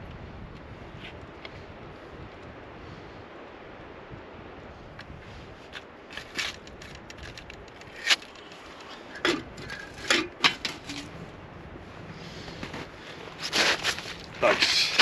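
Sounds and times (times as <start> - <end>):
handling clicks and crackles: 5.7 - 11.1
sharp scrapes: 13.4 - 15.0.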